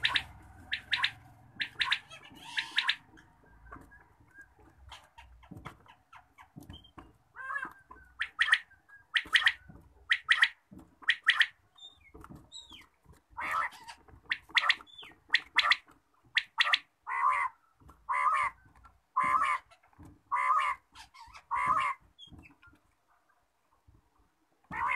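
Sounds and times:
quail calling: 0.0s - 3.3s, 7.3s - 11.6s, 13.4s - 22.1s, 24.7s - 24.9s.

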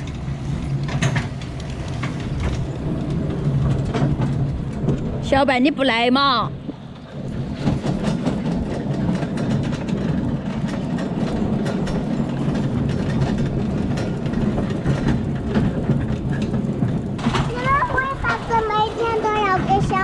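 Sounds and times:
motor tricycle engine running: 0.0s - 20.0s
vehicle body rattling: 7.1s - 20.0s.

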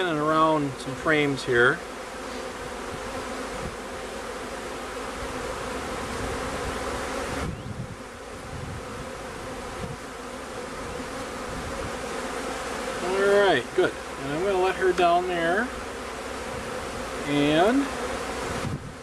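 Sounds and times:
honey bees buzzing: 0.0s - 19.0s.

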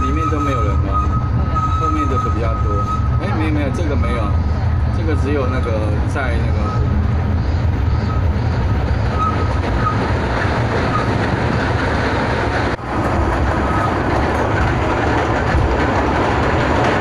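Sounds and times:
faint wheel squeals: 0.0s - 10.1s
train wheels rumbling on rail: 0.0s - 17.0s.

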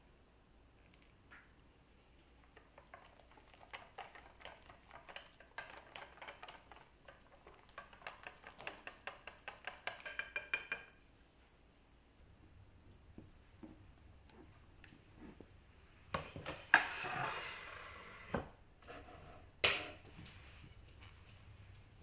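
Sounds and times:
whisk beating against metal bowl: 2.6s - 10.8s.

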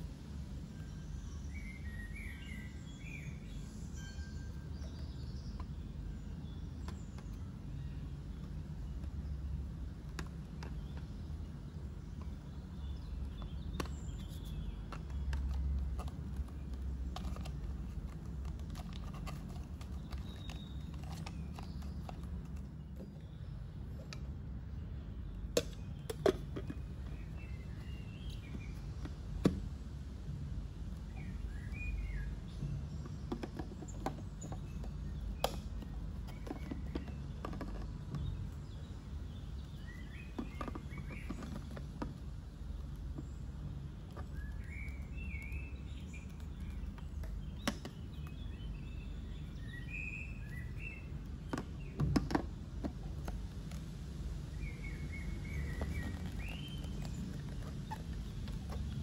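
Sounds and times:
low background hum: 0.0s - 59.0s
plastic clicks and knocks: 13.2s - 23.2s, 33.0s - 38.4s, 40.3s - 42.2s, 46.9s - 48.3s, 51.3s - 53.4s.

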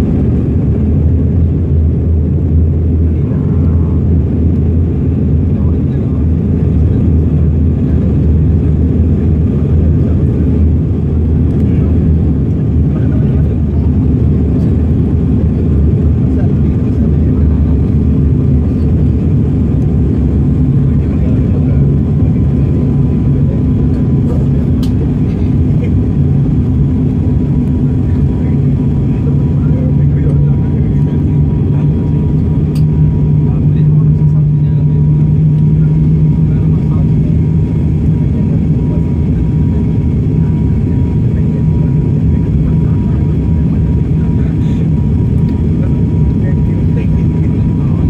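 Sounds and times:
airliner cabin rumble: 0.0s - 48.0s.

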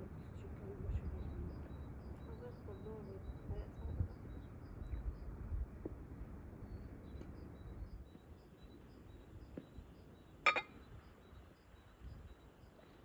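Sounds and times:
tableware clinking down: 10.5s - 10.8s.

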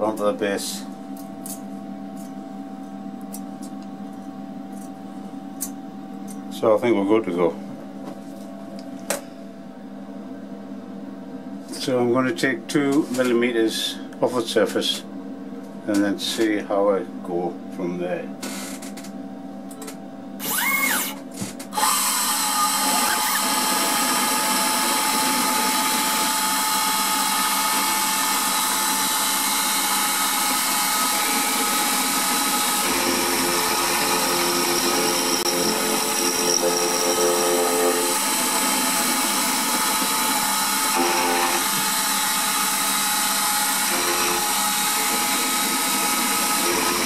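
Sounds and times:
milling spindle whining: 21.8s - 47.0s.

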